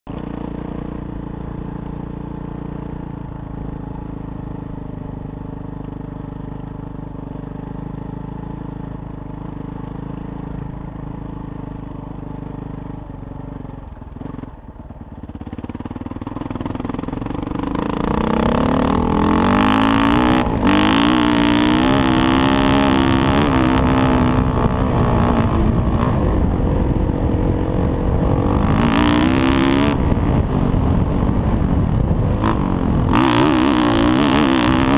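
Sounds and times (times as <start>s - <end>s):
dirt bike engine revving: 15.4s - 34.9s.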